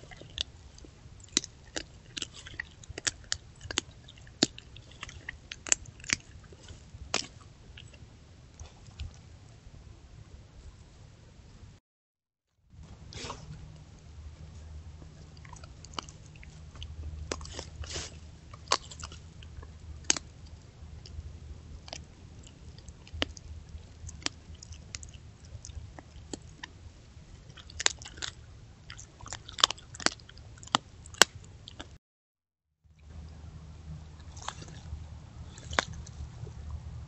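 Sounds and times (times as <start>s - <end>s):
coyote crunching bones: 0.0s - 8.0s, 15.0s - 26.8s, 27.4s - 31.9s, 34.2s - 36.6s
wet chewing: 0.0s - 9.3s, 13.0s - 32.0s, 34.1s - 36.8s
low hum: 12.8s - 27.5s, 32.9s - 37.0s.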